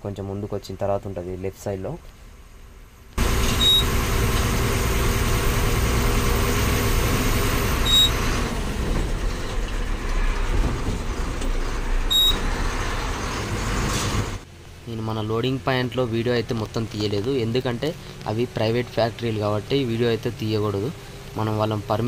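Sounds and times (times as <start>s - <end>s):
road noise: 0.0s - 22.0s
lorry diesel engine running: 3.2s - 14.5s
short high beep: 3.4s - 4.0s, 7.8s - 8.2s, 12.1s - 12.4s.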